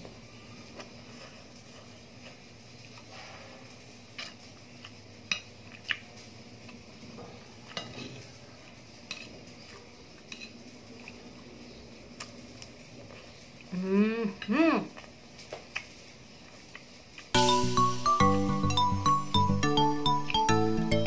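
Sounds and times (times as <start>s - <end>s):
cutlery clinking on a plate: 7.7s - 8.4s, 9.0s - 10.6s.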